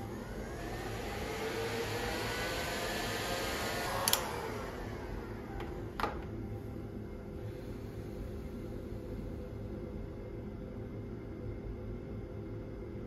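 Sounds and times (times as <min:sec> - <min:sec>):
heat gun fan whirring: 0:00.0 - 0:07.7
sharp click: 0:04.0 - 0:04.3.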